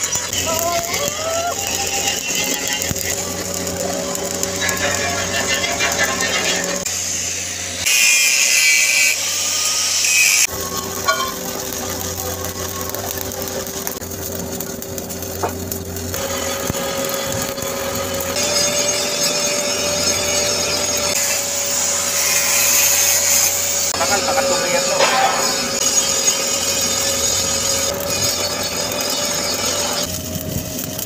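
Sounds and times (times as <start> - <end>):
angle grinder grinding metal: 0.0 - 31.0
welding arc crackling: 0.0 - 31.0.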